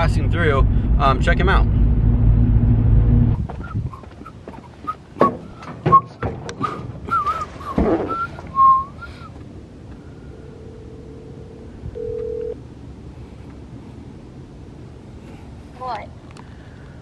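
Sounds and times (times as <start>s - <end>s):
short wavering whistled notes: 5.9s - 9.3s
phone ringback tone: 10.3s - 12.6s.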